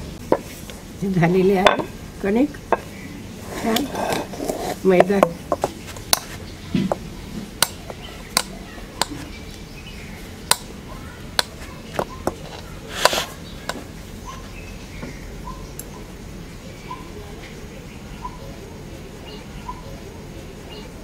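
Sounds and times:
scraping in metal bowl: 2.7 - 7.0, 12.0 - 14.5.

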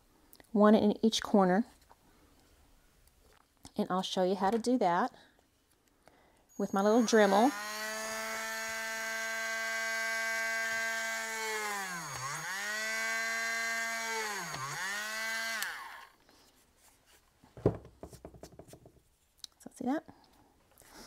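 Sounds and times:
rotary tool drilling into wood: 6.6 - 16.2.

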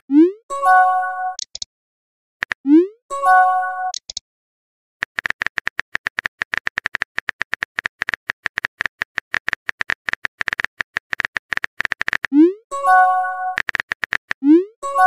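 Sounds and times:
phone keyboard typing clicks: 1.4 - 1.7, 3.9 - 4.2, 5.0 - 12.4, 13.5 - 14.5.

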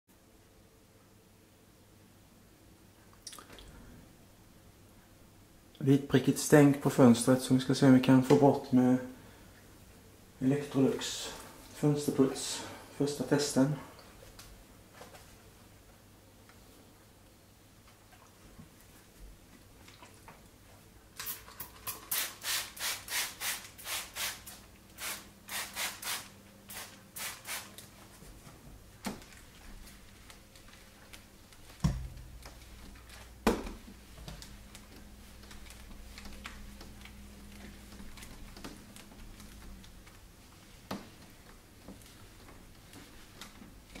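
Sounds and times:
spray bottle squirting: 21.2 - 27.7.

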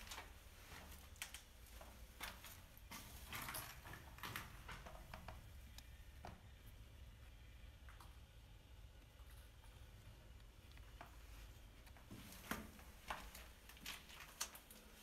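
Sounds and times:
low steady rumble: 2.7 - 12.1.

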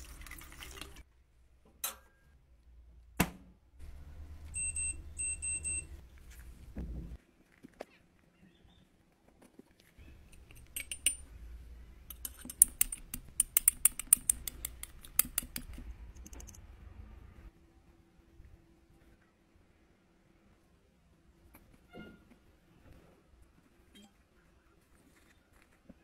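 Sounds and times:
metal spatula tapping: 12.1 - 15.7.

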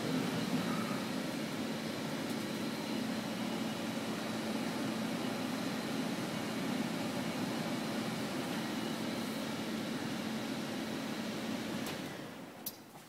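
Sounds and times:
air handler blower running: 0.0 - 12.7.

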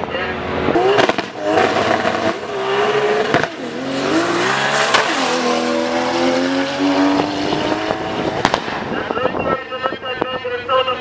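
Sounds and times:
drag car engine accelerating: 0.4 - 9.1.

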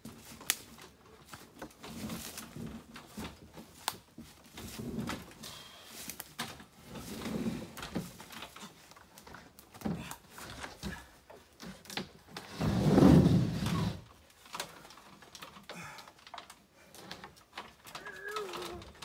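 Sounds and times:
wood panel scraping: 12.4 - 14.1.

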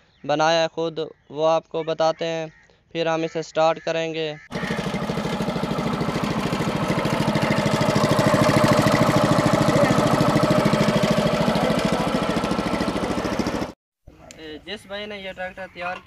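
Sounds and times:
small petrol engine running: 4.5 - 13.8.

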